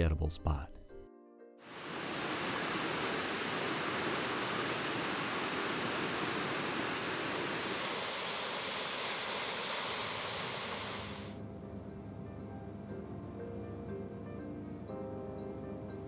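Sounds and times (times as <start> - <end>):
waterfall rushing: 1.7 - 11.4.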